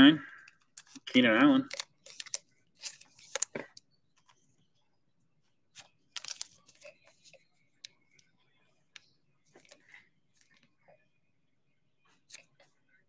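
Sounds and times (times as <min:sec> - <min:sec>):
trading cards rustling: 0:00.4 - 0:03.8, 0:05.8 - 0:08.0.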